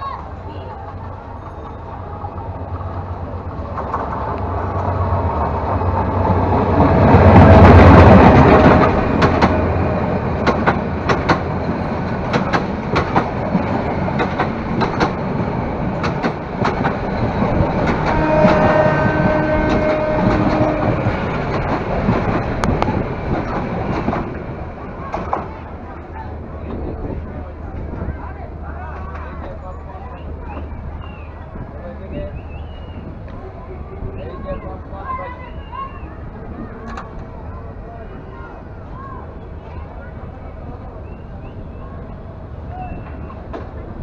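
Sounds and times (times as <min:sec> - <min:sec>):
passing train rushing: 0:00.0 - 0:44.0
train wheels clattering over joints: 0:00.8 - 0:25.8.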